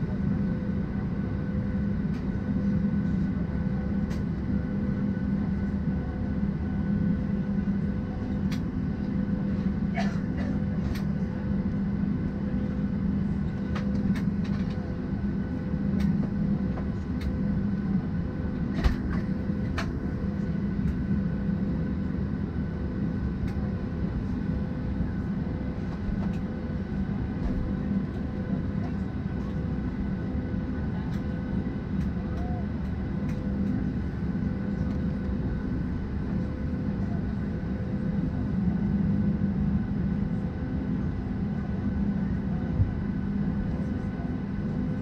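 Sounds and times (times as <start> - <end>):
airliner cabin drone: 0.0 - 45.0.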